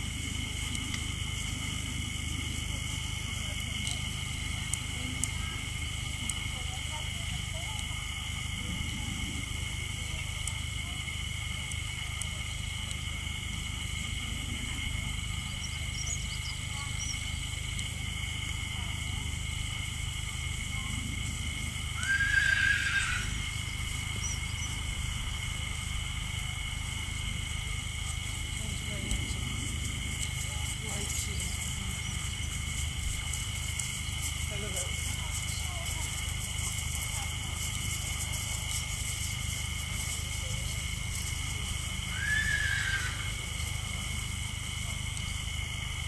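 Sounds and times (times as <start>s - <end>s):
horse whinnying: 22.0s - 23.4s, 42.2s - 43.3s.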